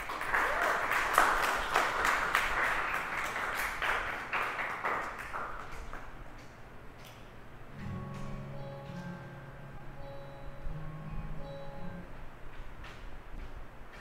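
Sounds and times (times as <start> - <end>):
congregation applauding: 0.0 - 6.2.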